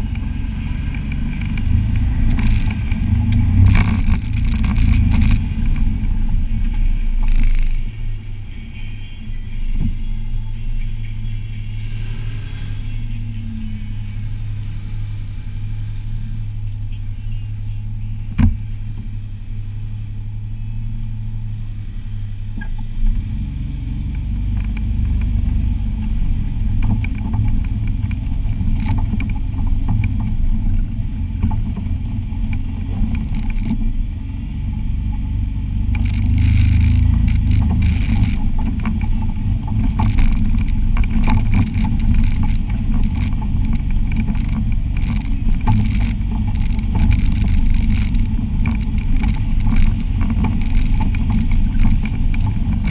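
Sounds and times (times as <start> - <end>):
vehicle rattling and knocking: 0.0 - 8.0, 24.0 - 52.9
utility vehicle engine rumbling: 0.0 - 52.9.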